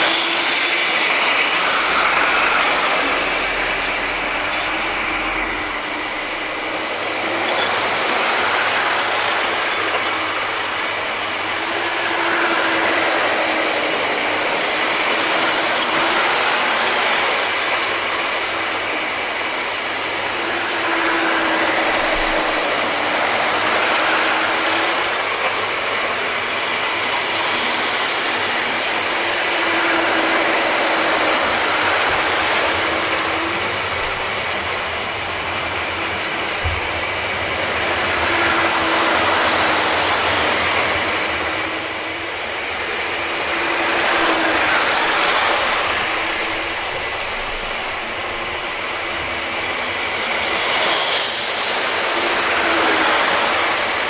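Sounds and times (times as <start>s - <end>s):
model trains running on rails: 0.0s - 54.0s.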